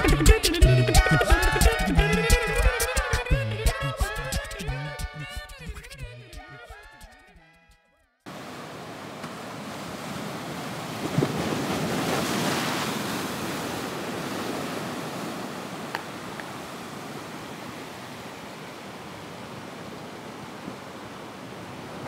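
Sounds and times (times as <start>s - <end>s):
sea surf washing: 8.3s - 22.0s.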